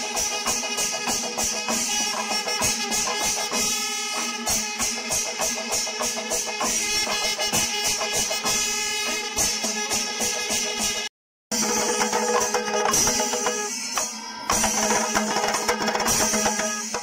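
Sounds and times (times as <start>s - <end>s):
brass cymbals ringing: 0.0s - 17.0s
hand-beaten drums: 0.0s - 17.0s.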